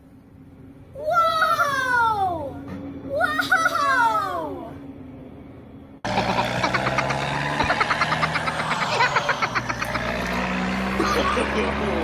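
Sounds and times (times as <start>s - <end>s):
steady engine-like hum: 0.0s - 12.0s.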